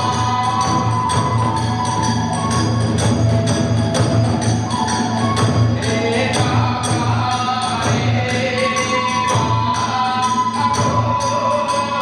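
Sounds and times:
bamboo flute melody: 0:00.0 - 0:12.0
taiko drum beat: 0:00.0 - 0:12.0.

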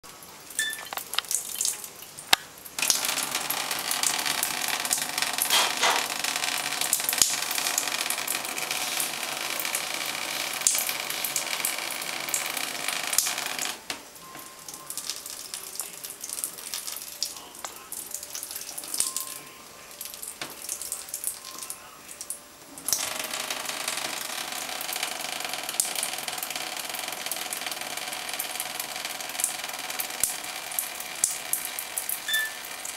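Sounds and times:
shower water spraying: 0:02.8 - 0:13.8.

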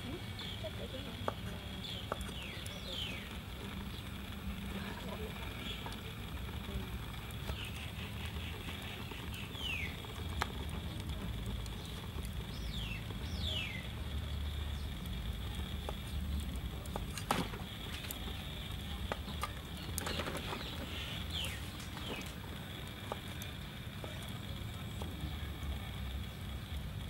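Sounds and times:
whistled bird calls: 0:07.6 - 0:10.0.

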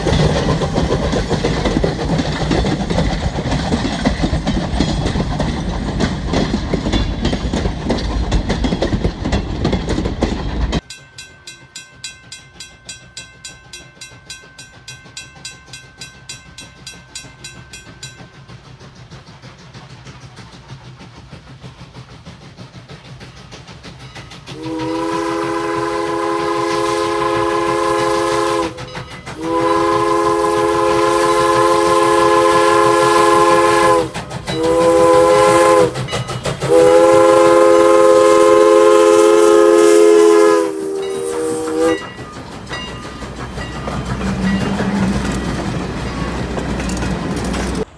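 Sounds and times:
railcar wheels rumbling on rail: 0:00.0 - 0:47.9
chime steam whistle blasts: 0:24.4 - 0:46.5.

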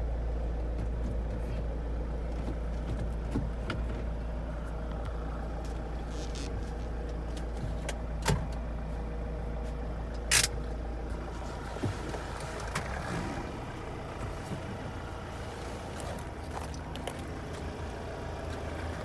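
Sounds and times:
van engine idling: 0:00.0 - 0:19.0
sharp click: 0:10.2 - 0:10.6.

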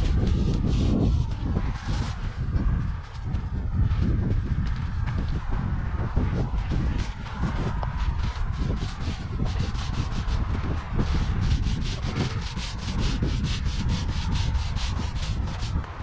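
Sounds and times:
paint roller rasping on wall: 0:00.0 - 0:02.4, 0:06.2 - 0:16.0
low rumble: 0:00.0 - 0:16.0.

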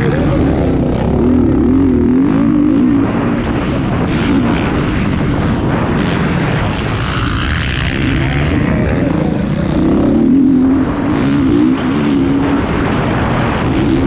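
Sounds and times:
motocross bike engine revving: 0:00.0 - 0:14.0.

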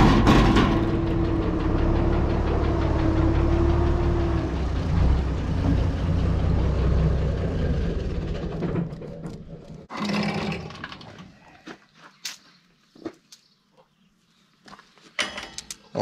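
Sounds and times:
engine idling: 0:00.0 - 0:09.9.

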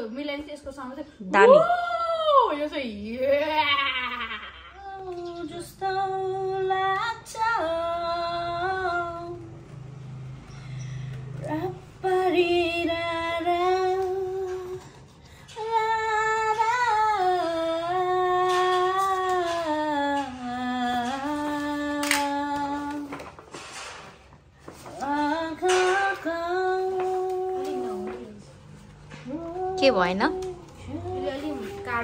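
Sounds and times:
woman humming: 0:26.9 - 0:28.5, 0:29.2 - 0:32.0.

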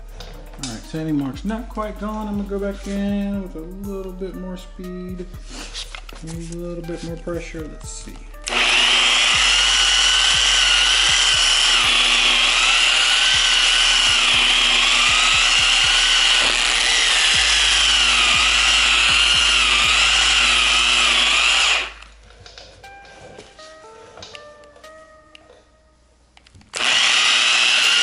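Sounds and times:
polisher motor whine: 0:08.4 - 0:22.0, 0:26.8 - 0:28.0.

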